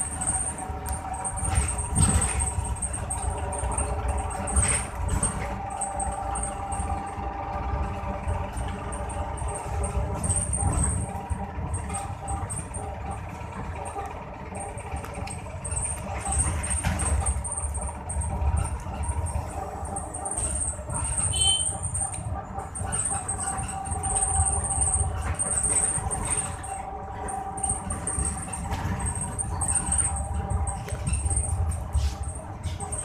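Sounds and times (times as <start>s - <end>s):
vehicle engine and road rumble: 0.0s - 33.0s.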